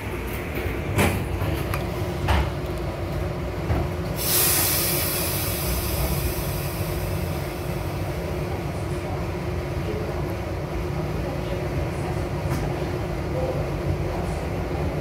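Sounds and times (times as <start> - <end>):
subway train wheels rumbling: 0.0 - 15.0
air hiss: 4.2 - 7.9.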